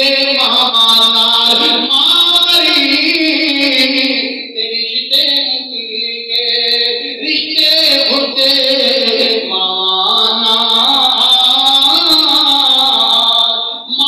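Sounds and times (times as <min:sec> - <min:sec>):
man chanting over loudspeaker: 0:00.0 - 0:14.0.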